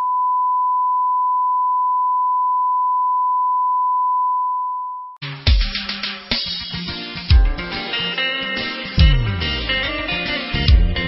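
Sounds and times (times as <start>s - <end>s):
steady test tone beep: 0.0s - 5.2s
music with guitar and drums: 5.2s - 11.0s.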